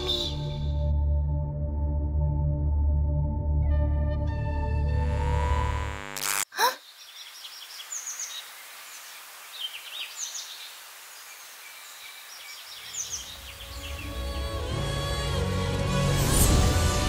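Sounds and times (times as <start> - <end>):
birds chirping: 0.0 - 0.8, 6.6 - 14.2
outdoor ambience hiss: 6.0 - 14.2.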